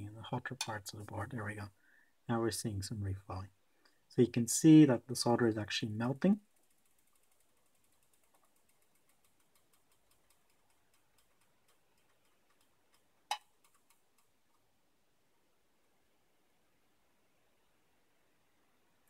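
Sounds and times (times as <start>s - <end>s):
hot plate rapid ticking: 6.4s - 13.9s.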